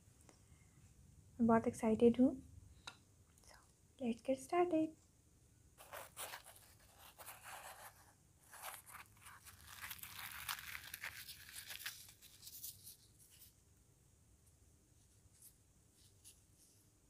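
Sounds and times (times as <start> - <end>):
crisp bread tearing and crackling: 8.4 - 12.8.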